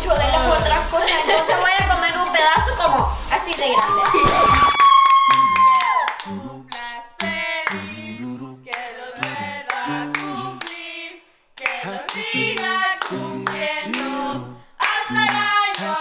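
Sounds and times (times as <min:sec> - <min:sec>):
low bass notes: 0:00.0 - 0:01.0
clapping beat: 0:01.8 - 0:07.8, 0:08.7 - 0:10.8, 0:11.6 - 0:16.0
person singing: 0:04.2 - 0:10.8, 0:11.6 - 0:16.0.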